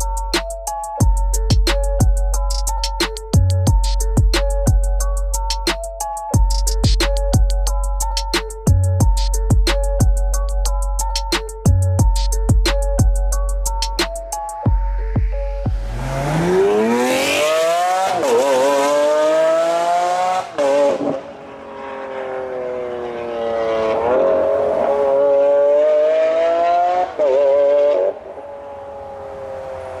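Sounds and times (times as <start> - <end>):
car engine accelerating hard: 15.7 - 30.0.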